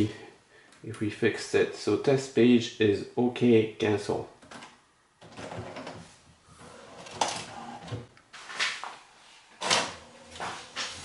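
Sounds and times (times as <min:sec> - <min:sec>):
printer mechanical clunks and whirs: 0:09.6 - 0:11.0.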